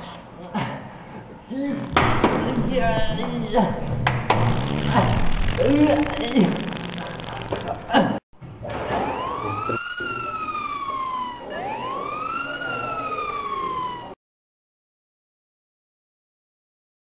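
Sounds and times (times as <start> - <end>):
siren wailing: 2.5 - 7.9, 8.8 - 14.2.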